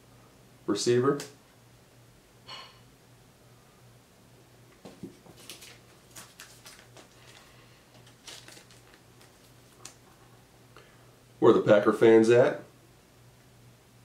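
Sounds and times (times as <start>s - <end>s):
low steady hum: 0.0s - 14.0s
trading cards rustling and clicking: 4.9s - 10.3s.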